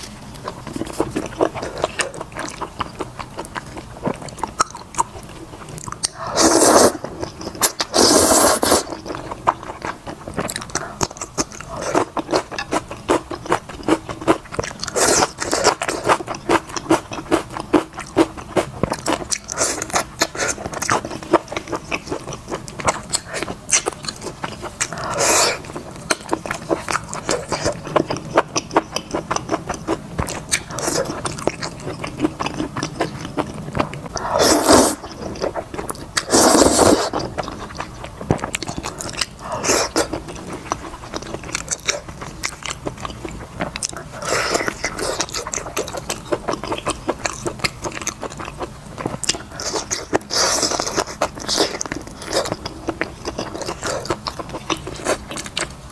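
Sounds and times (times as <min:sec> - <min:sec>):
person chewing wetly: 0:00.0 - 0:55.9
loud slurps: 0:06.2 - 0:08.9, 0:24.9 - 0:25.7, 0:34.2 - 0:35.1, 0:36.2 - 0:37.2.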